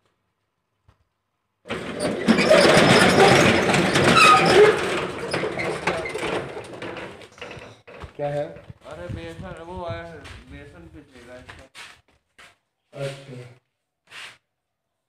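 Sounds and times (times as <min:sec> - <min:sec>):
rolling shutter rattling and grinding: 0:01.7 - 0:09.1
metallic squeals: 0:01.8 - 0:06.7.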